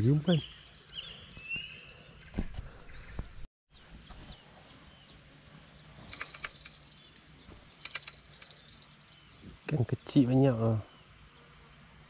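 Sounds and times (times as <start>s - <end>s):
high-pitched insect chorus: 0.0s - 3.4s, 4.8s - 12.0s.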